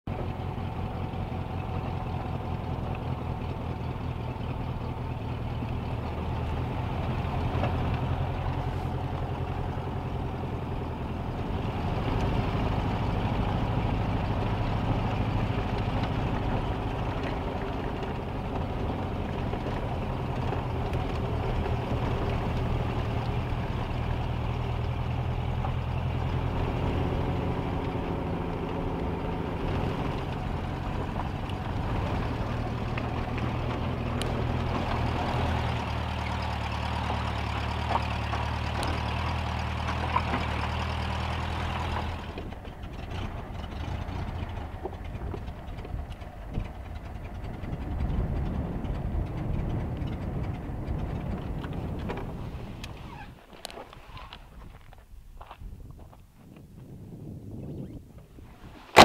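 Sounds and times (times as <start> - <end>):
car engine pulsing: 0.0 - 54.9.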